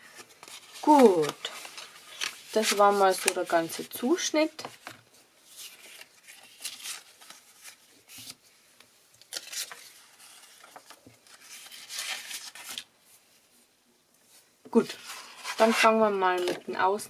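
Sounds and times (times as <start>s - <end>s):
paper rustling: 0.0s - 4.0s, 4.6s - 8.5s, 9.2s - 13.3s, 14.3s - 16.6s.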